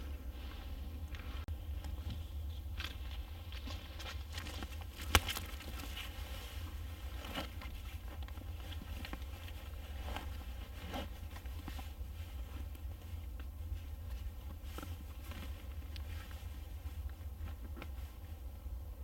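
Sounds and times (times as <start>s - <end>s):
footsteps on forest floor: 0.4s - 7.6s.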